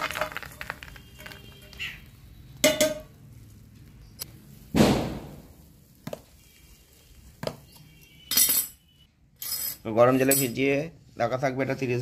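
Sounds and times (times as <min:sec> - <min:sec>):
loud thud: 0:04.7 - 0:05.6.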